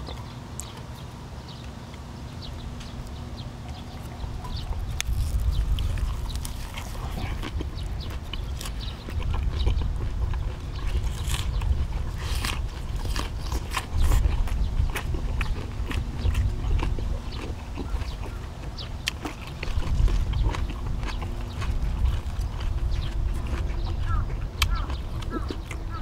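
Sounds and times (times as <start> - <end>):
person chewing food: 0.0 - 26.0
low rumble: 2.4 - 26.0.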